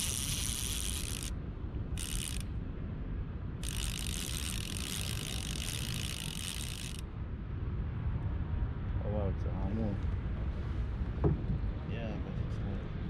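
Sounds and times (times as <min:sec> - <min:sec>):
fishing reel clicking: 0:00.0 - 0:02.5, 0:03.6 - 0:07.0.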